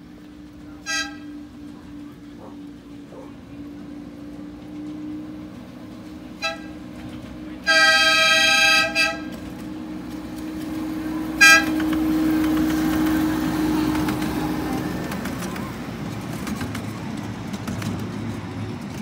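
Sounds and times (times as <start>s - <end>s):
miniature locomotive horn toots: 0.7s - 3.1s, 6.2s - 15.5s.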